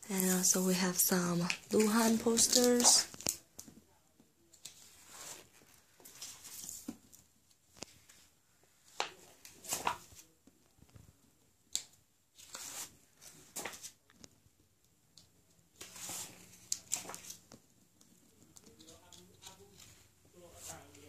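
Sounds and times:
paper rustling and sliding: 4.7 - 7.0, 9.0 - 10.3, 12.4 - 14.0, 15.8 - 17.4.

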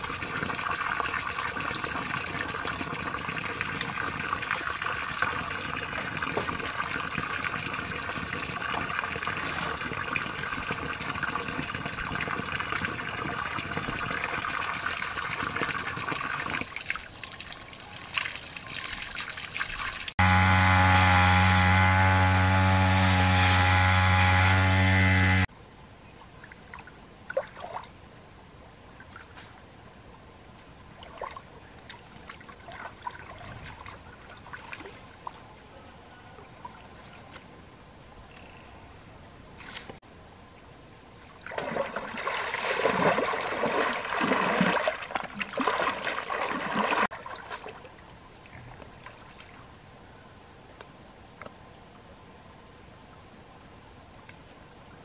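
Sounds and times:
water trickling and splashing: 0.0 - 20.2, 26.2 - 28.1, 28.9 - 35.8, 41.2 - 49.9
water sloshing: 31.0 - 35.4, 41.3 - 49.6.

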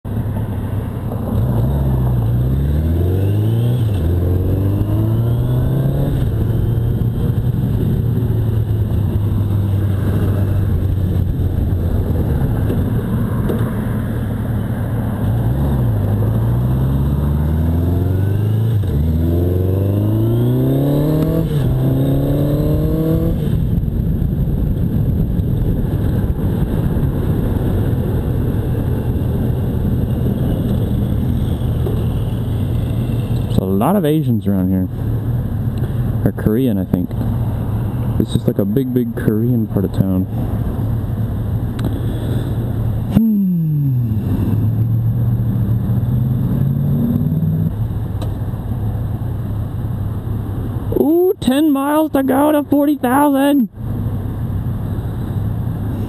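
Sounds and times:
wind rushing over microphone: 0.1 - 43.2, 43.8 - 51.0
motorcycle engine accelerating: 1.1 - 14.2, 14.9 - 33.8, 39.9 - 48.4.

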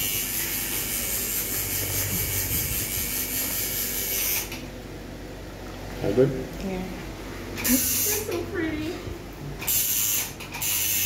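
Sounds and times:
tattoo machine whirring: 0.0 - 4.7, 7.6 - 8.4, 9.6 - 11.0.

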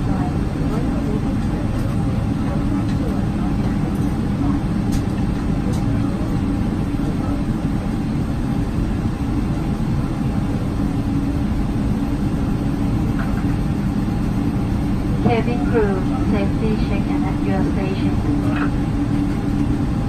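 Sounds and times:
airplane cabin rumble: 0.0 - 20.0.

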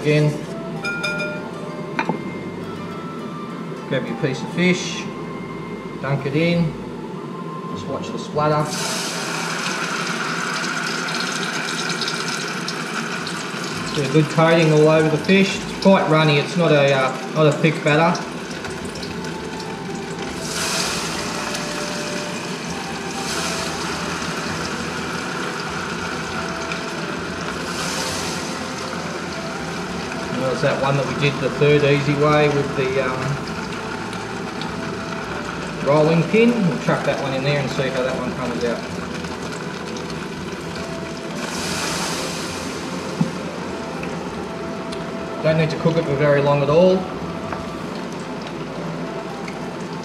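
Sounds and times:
hot oil sizzling in a frying pan: 8.6 - 50.0.

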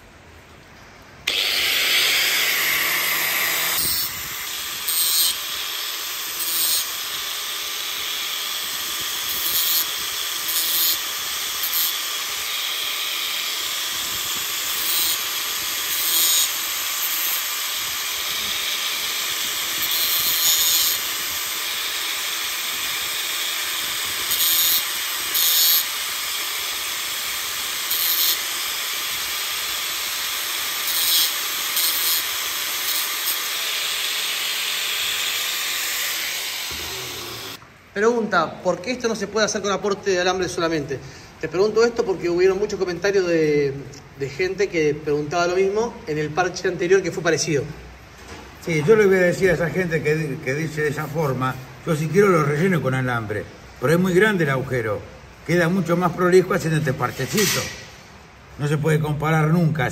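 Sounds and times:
angle grinder motor running: 1.2 - 37.6
grinding rasps on steel: 1.3 - 37.6.

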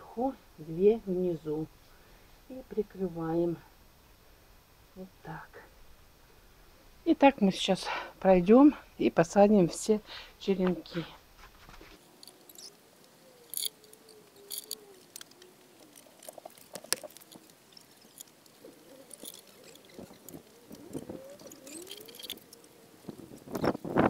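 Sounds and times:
gloved hands rustling soil: 10.7 - 24.0
faint wavering tone: 12.2 - 15.0, 15.8 - 22.8.

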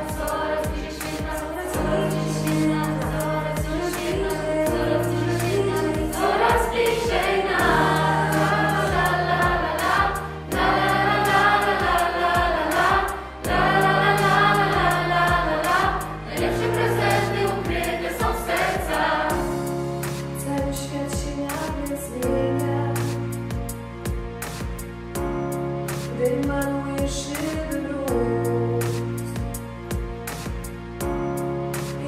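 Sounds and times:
children's choir singing: 0.0 - 19.7
instrumental backing with beat: 0.0 - 32.0.

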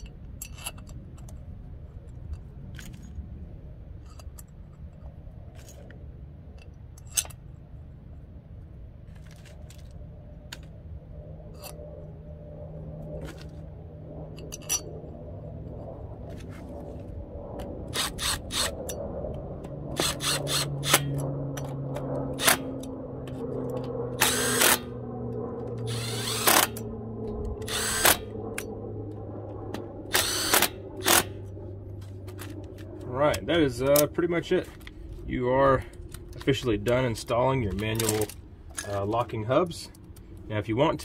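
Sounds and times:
steady low hum: 0.0 - 41.0
cordless drill running: 17.9 - 18.8, 20.0 - 21.1, 24.2 - 24.9, 25.8 - 26.9, 27.6 - 28.3, 30.1 - 31.3.

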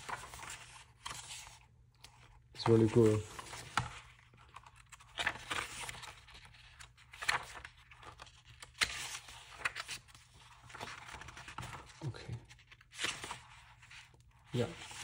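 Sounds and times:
paper pages turning: 0.0 - 15.0.

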